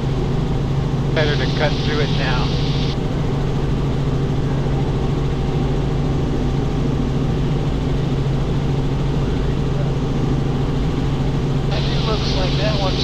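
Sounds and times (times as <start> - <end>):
helicopter engine and rotor drone: 0.0 - 13.0.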